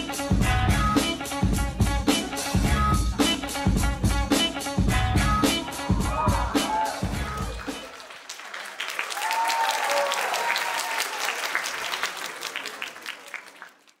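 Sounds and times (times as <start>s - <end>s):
dance music beat: 0.0s - 7.9s
person cheering: 5.6s - 7.7s, 9.1s - 11.3s
audience clapping: 6.0s - 14.0s.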